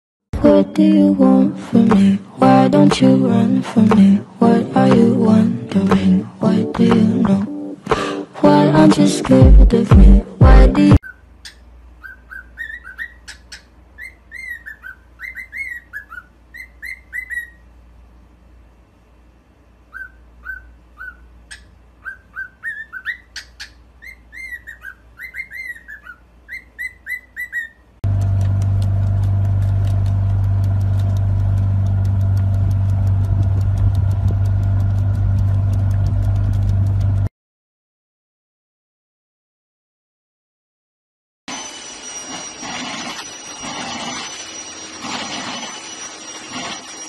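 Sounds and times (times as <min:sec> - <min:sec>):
cockatiel chirping: 0:11.0 - 0:17.6, 0:19.9 - 0:27.8
motorboat engine humming: 0:28.0 - 0:37.3.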